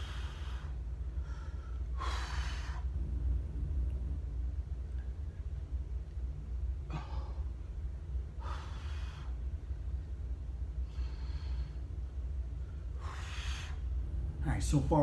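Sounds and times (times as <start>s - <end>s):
man breathing hard: 0.0s - 3.0s, 6.8s - 7.7s, 8.3s - 9.6s, 10.8s - 14.0s
steady low hum: 0.0s - 15.0s.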